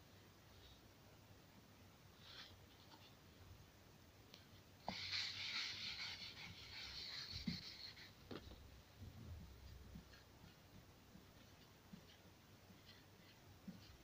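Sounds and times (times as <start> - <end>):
cloth wiping whiteboard: 4.8 - 8.2, 9.6 - 14.0.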